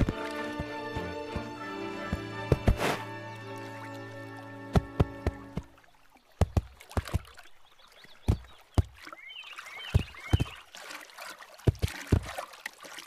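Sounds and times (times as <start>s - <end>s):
bird chirps: 7.4s - 10.7s
cartoon water plops: 11.6s - 12.6s.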